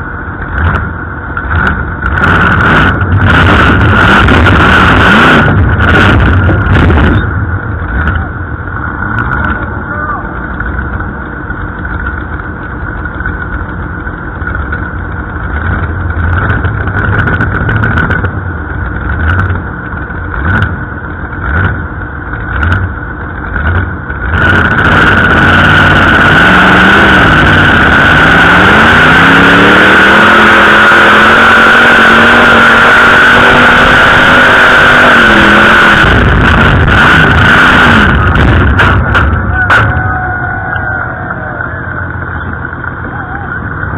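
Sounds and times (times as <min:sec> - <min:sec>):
tractor engine idling: 0:00.0 - 0:02.2, 0:05.6 - 0:24.4, 0:37.9 - 0:43.9
engine throttle blips: 0:00.0 - 0:43.9
tractor engine at full throttle: 0:00.0 - 0:43.9.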